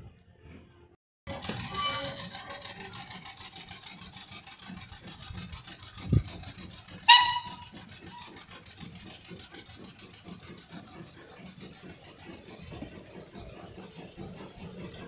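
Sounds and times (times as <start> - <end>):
steam locomotive exhaust beats: 1.3 - 15.0
steam whistle toot: 7.0 - 8.2.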